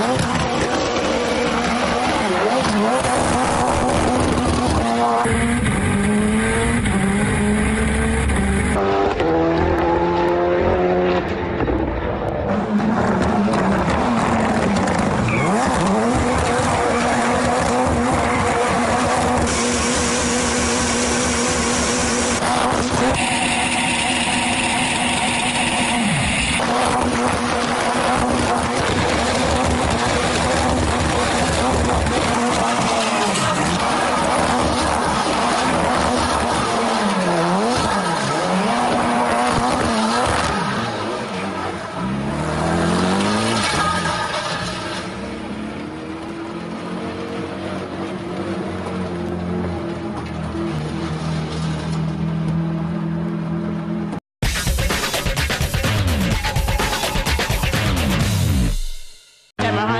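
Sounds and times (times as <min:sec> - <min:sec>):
car engine at high revs: 0:00.0 - 0:54.2
tyres squealing and skidding: 0:11.4 - 0:46.3, 0:55.5 - 0:58.6.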